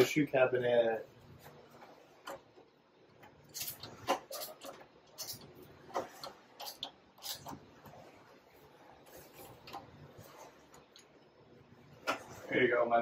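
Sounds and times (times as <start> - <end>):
light clicks and scrapes: 12.0 - 12.8.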